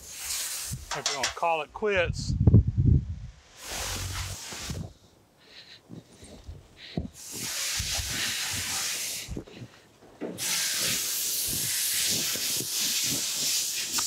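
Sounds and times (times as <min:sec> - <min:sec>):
fabric rubbing hiss: 0:00.0 - 0:01.3, 0:03.3 - 0:05.8, 0:06.8 - 0:14.0.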